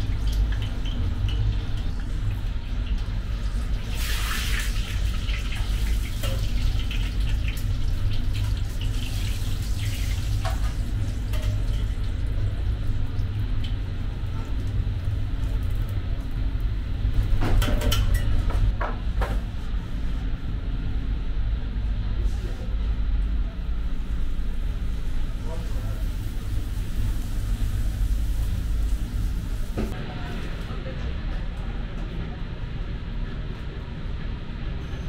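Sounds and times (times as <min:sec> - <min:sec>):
dough sizzling in hot oil: 0:00.0 - 0:12.7, 0:26.0 - 0:29.8
constant low hum: 0:00.0 - 0:35.0.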